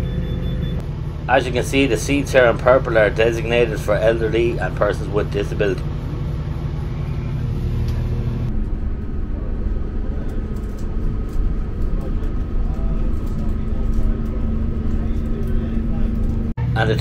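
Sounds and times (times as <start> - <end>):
diesel engine idling rumble: 0.0 - 17.0
thin steady whine: 0.0 - 17.0.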